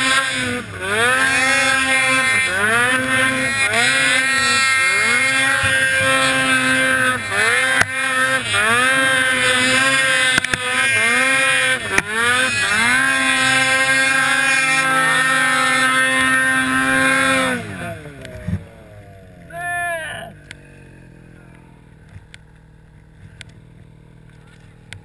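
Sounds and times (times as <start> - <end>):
snowmobile engine revving: 0.0 - 25.0.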